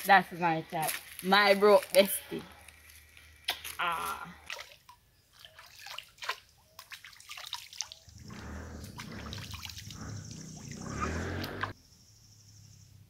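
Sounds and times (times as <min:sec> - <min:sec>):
river water splashing and dripping: 0:04.4 - 0:11.8.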